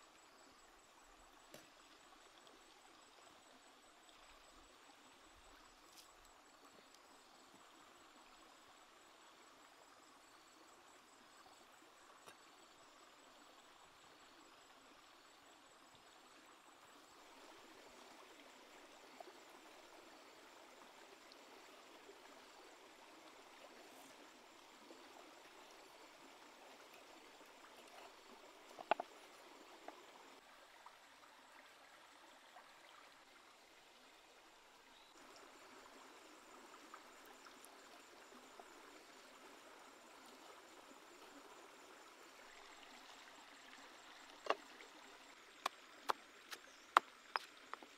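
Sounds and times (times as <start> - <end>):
rushing water: 17.0 - 34.6, 35.2 - 47.9.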